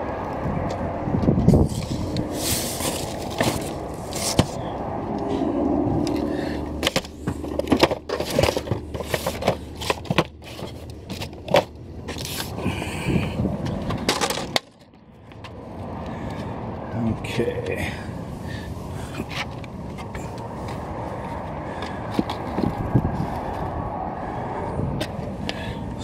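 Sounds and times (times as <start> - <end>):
cardboard scraping: 1.6 - 4.6, 6.8 - 12.5
packages knocking and clacking: 6.8 - 11.7.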